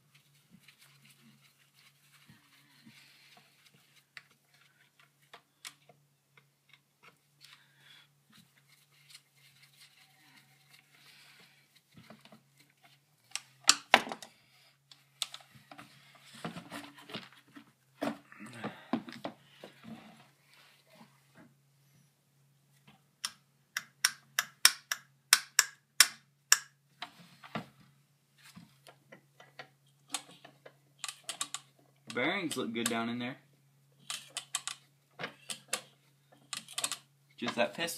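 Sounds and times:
hand tools clicking and tapping: 0:23.2 - 0:26.8, 0:29.1 - 0:33.0, 0:34.0 - 0:37.6.

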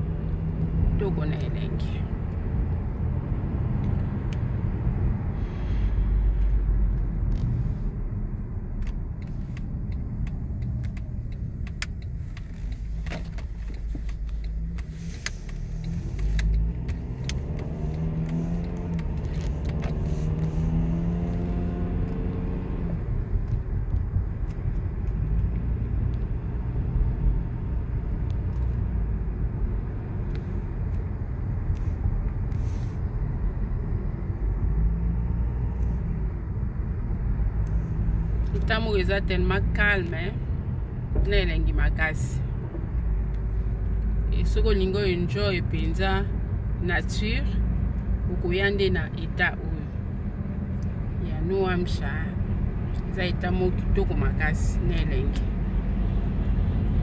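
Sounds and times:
car engine and tyre rumble: 0:00.0 - 0:57.0.

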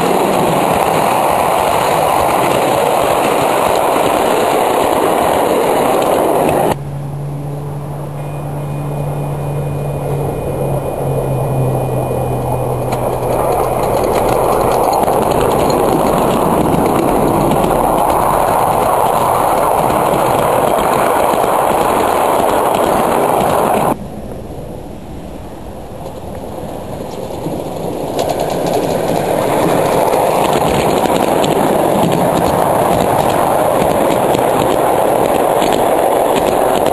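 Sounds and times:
miniature train wheels clacking: 0:12.7 - 0:24.0, 0:26.9 - 0:36.9.

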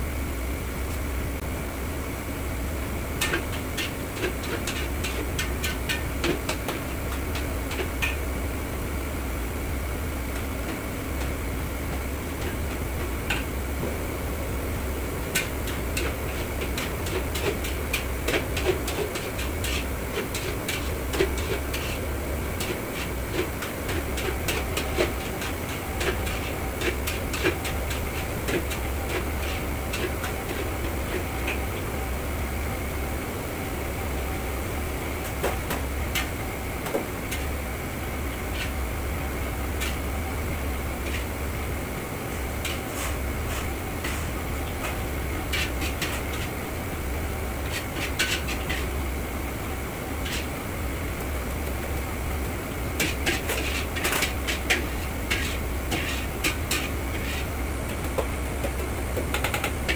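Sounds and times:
gas burner roar: 0:00.0 - 0:59.9
kitchen ventilation: 0:00.0 - 0:59.9
metal ladle scraping wok: 0:47.6 - 0:49.0, 0:50.2 - 0:50.5, 0:53.0 - 0:57.5.

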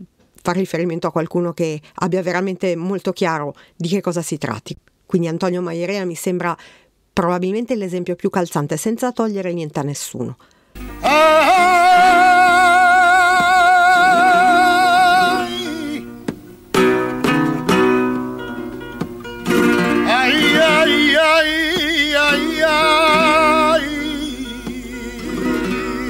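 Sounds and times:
flamenco guitar notes: 0:10.8 - 0:26.0
man singing a wavering lament: 0:11.0 - 0:16.1, 0:20.0 - 0:26.0.

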